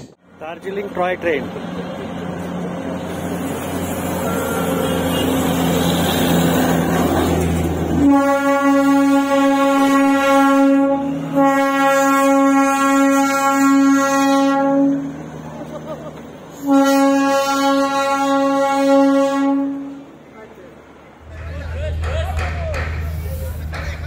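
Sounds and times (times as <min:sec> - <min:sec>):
diesel locomotive engine humming: 0:00.0 - 0:24.0
locomotive horn blasts: 0:03.9 - 0:06.8, 0:08.0 - 0:15.2, 0:16.6 - 0:20.1.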